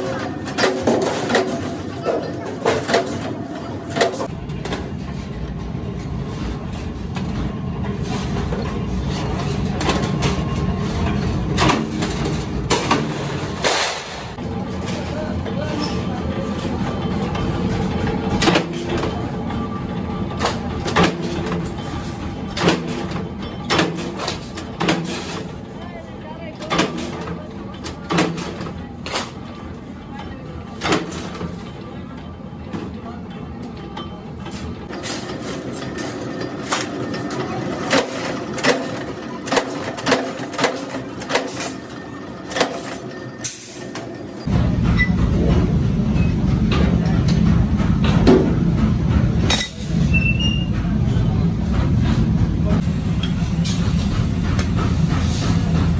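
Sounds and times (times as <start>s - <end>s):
power press running: 26.5s - 55.9s.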